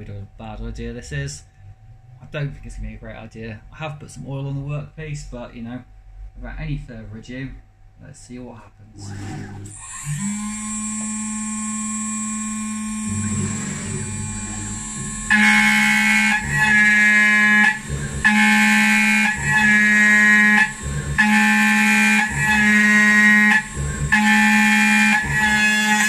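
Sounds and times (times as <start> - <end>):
router spindle high-pitched whine: 9.1 - 26.0.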